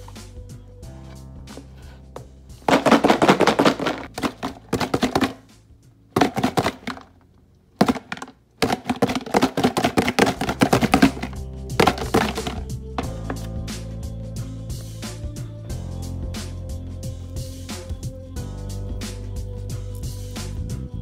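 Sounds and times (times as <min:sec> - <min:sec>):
eggs rattling in plastic container: 0:02.7 - 0:05.5, 0:06.2 - 0:07.2, 0:07.8 - 0:13.4.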